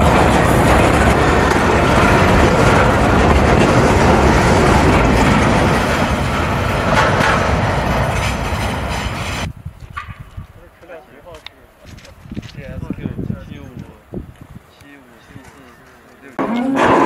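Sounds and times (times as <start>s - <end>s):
freight train rolling past: 0.0s - 10.2s.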